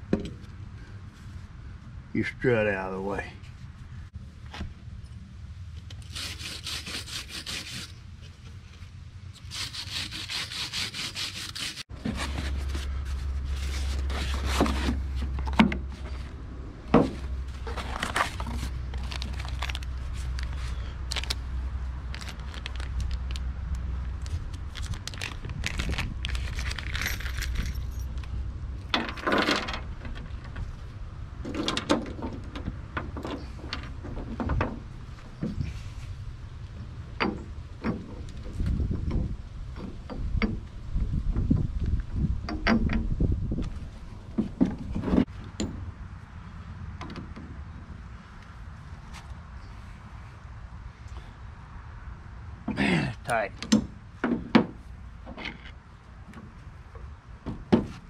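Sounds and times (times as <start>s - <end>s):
wire brush rasping on metal: 6.0s - 8.0s, 9.4s - 11.9s
metal parts clinking: 24.8s - 29.9s.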